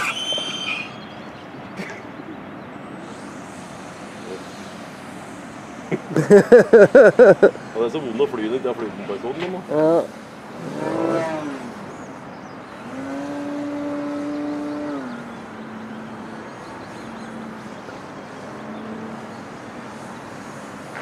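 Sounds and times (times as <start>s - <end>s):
model airplane motor humming: 9.9s - 12.0s.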